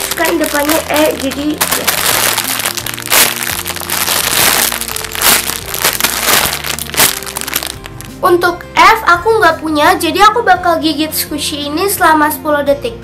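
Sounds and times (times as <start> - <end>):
plastic packaging crinkling: 0.0 - 8.2
background music: 0.0 - 13.0.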